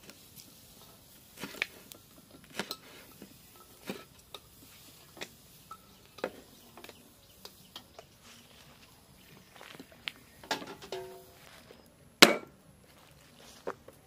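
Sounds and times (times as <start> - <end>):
cleaver chopping on wooden block: 12.2 - 12.5.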